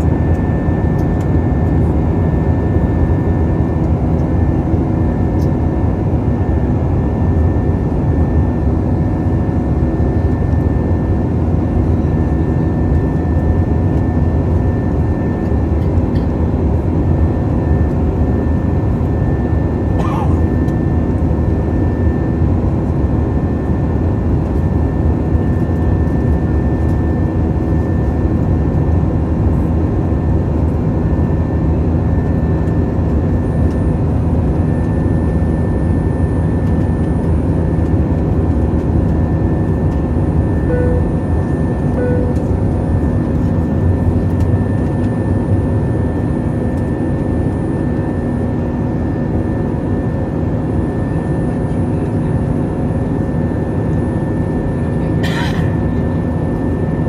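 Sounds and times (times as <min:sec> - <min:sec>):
jet engines droning: 0:00.0 - 0:57.0
thin high whine: 0:40.5 - 0:42.9.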